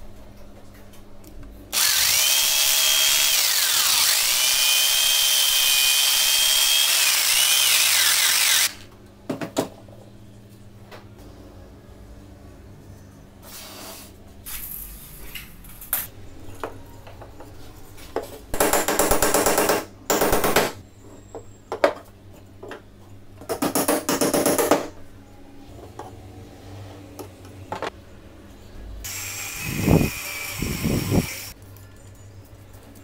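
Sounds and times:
cordless drill whining: 1.8s - 8.8s, 29.1s - 31.5s.

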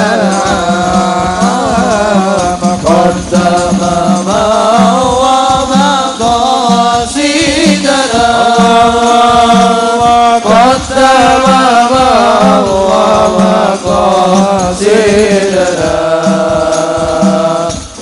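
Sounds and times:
frame drums beating: 0.0s - 18.0s
man singing into a microphone: 0.0s - 18.0s.

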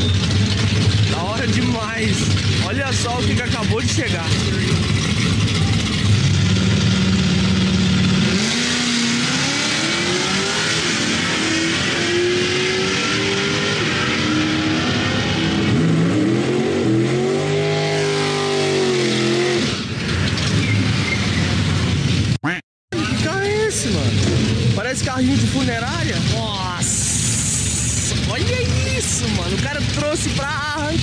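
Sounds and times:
engine revving through burnout: 0.0s - 21.8s
drag racing car engine revving: 0.0s - 22.4s, 23.0s - 31.0s.

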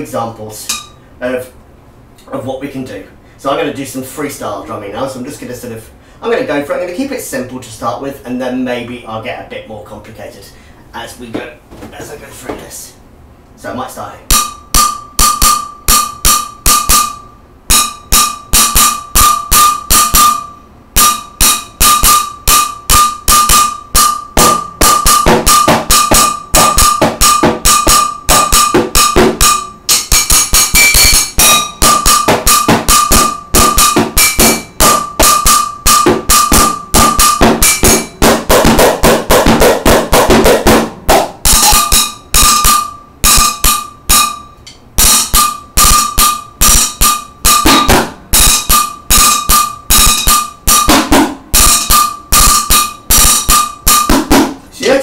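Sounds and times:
sticks drumming on a metal pot: 14.3s - 54.6s.

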